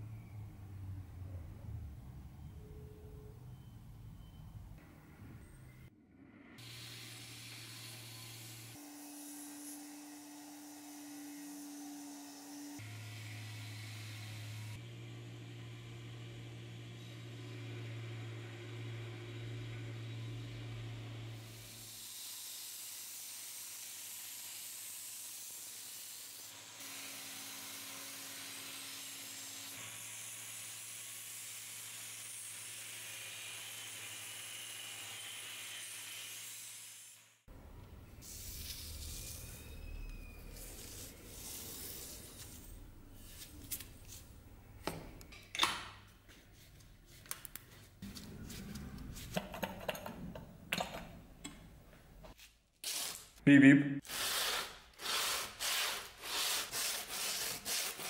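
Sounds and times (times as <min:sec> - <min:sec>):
motor hum: 0:06.6 - 0:21.8.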